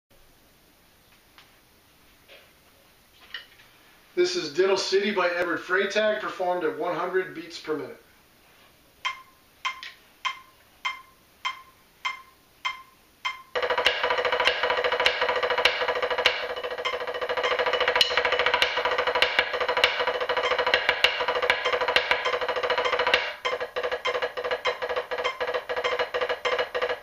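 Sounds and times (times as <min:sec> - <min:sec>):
metronome clicking: 0:09.0 - 0:27.0
snare drum solo: 0:13.5 - 0:27.0.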